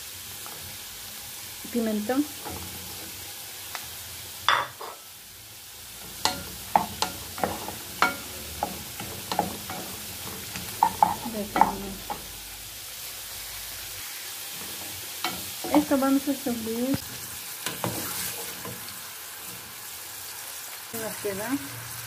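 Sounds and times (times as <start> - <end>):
vegetables sizzling in hot oil: 0.0 - 22.0
wooden spoon scraping a pot: 17.7 - 18.8.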